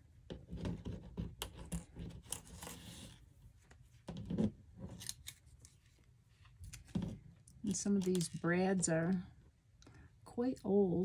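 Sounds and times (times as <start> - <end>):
paper scraping on table: 0.6 - 3.2.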